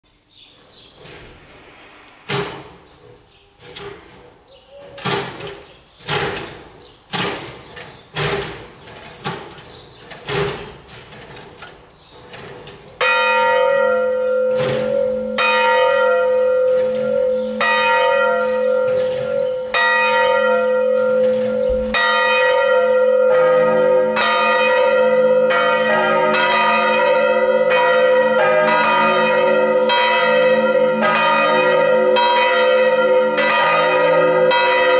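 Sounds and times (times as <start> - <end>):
church bell knocks: 13.0 - 34.9
church bell pealing: 13.0 - 34.9
lower church bell ringing: 13.0 - 34.9.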